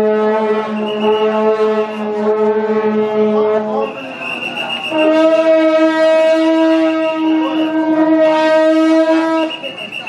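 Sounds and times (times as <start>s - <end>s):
wind instrument long note: 0.0s - 10.0s.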